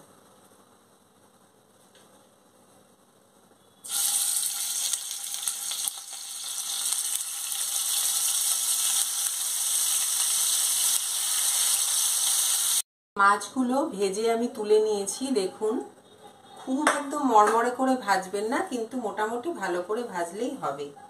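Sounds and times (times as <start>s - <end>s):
fish sizzling in hot oil: 3.8s - 12.8s.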